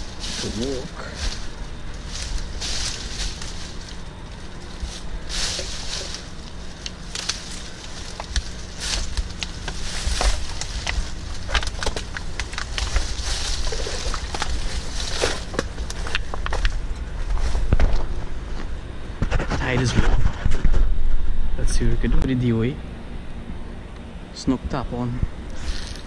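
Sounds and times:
branches swishing: 0.0 - 16.3
footsteps crunching through leaves: 0.0 - 18.7
twigs snapping: 0.0 - 18.7.

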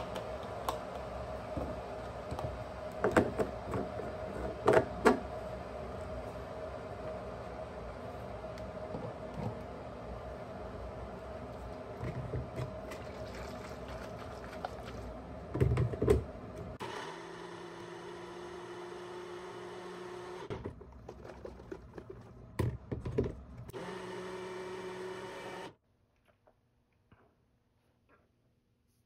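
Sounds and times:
blender motor running: 16.8 - 20.5, 23.7 - 25.8.

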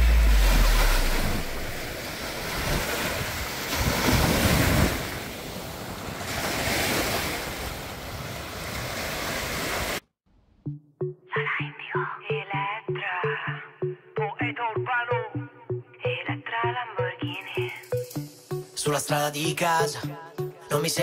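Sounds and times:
sea waves washing on sand: 0.0 - 10.0.

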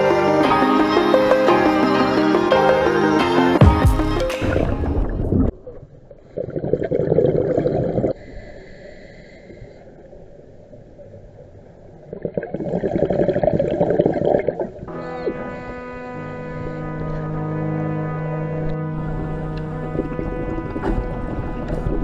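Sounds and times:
music: 0.0 - 5.3, 14.9 - 22.0
underwater rush of bubbles: 4.0 - 8.2, 12.1 - 14.9
diver exhaling bubbles: 6.3 - 8.2
diver breathing in: 7.9 - 10.1.

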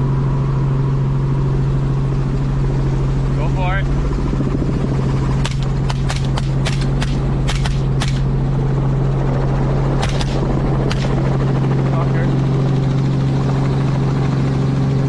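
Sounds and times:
helicopter rotor and engine drone: 0.0 - 15.0
rifle shots: 5.4 - 8.4, 10.0 - 11.2.

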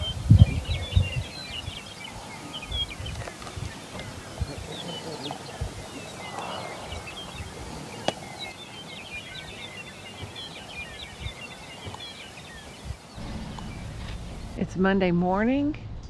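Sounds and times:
small birds chirping: 0.0 - 14.6
faint outdoor hiss: 0.0 - 16.0.

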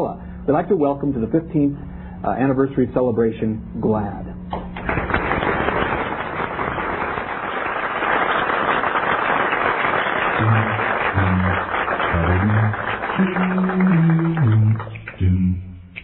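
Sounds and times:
audience applauding: 4.7 - 15.2
bass voice singing low notes: 10.4 - 16.0.

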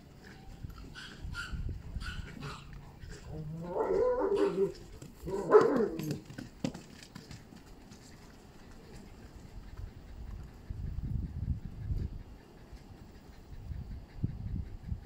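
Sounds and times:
dog barking: 1.0 - 2.6, 3.7 - 4.7, 5.3 - 6.2.

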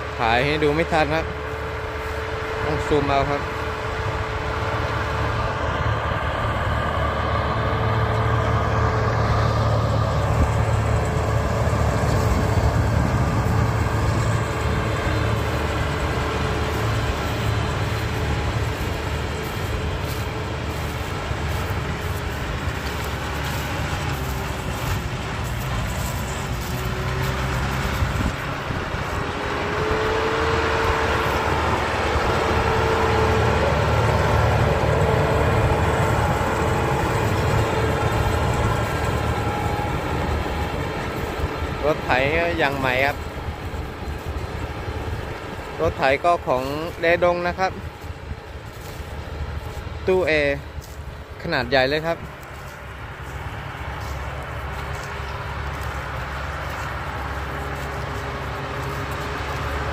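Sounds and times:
diesel tractor running: 0.0 - 59.9.

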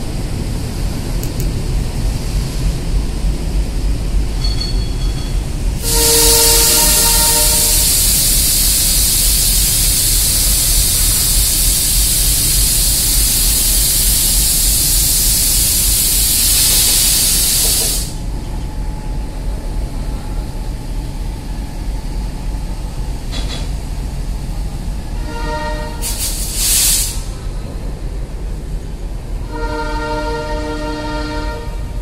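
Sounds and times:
low train rumble: 0.0 - 32.0
hiss of escaping air: 5.8 - 18.2, 25.9 - 27.5.

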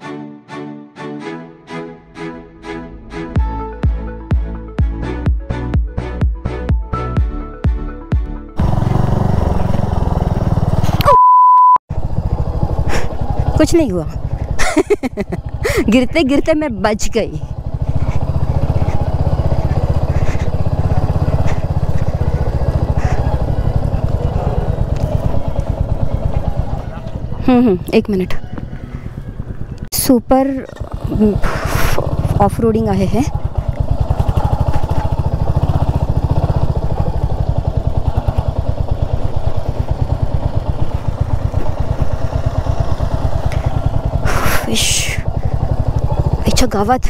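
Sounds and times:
motorcycle engine thumping: 14.2 - 15.9, 17.5 - 27.9, 30.7 - 44.5.

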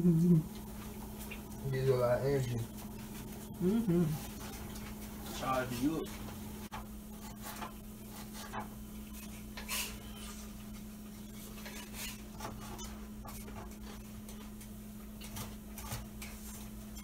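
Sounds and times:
steady low hum: 0.0 - 17.0
utensils scraping and tapping: 4.2 - 17.0.

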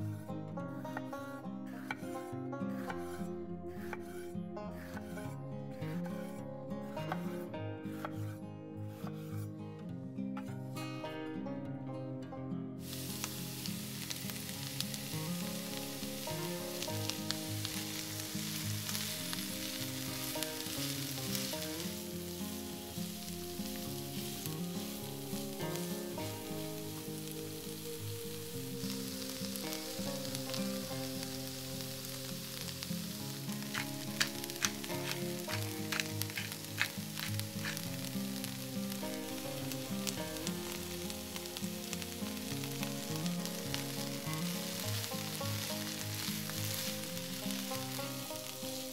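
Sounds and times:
soft background music: 0.0 - 48.9
vegetables sizzling in frying pan: 12.8 - 48.9.

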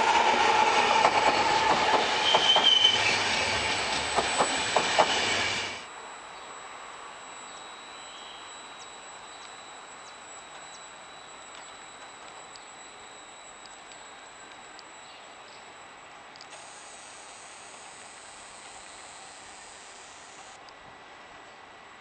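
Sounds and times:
train passing: 0.0 - 9.7
high wheel squeal: 0.1 - 5.8.

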